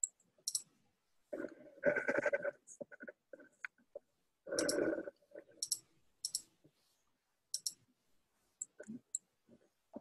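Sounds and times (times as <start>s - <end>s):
faint room noise: 0.0s - 10.0s
sharp clicks: 5.6s - 6.5s, 7.6s - 7.8s.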